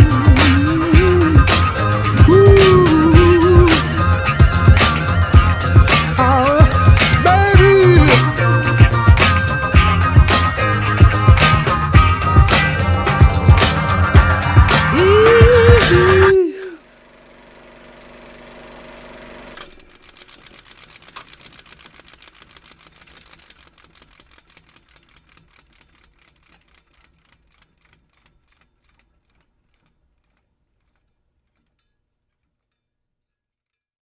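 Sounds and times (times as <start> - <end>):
bicycle freewheel hub ticking: 19.6 - 32.8.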